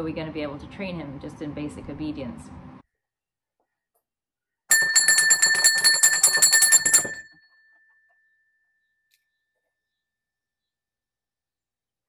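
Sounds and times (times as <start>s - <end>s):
metal bell rung rapidly: 4.7s - 7.3s.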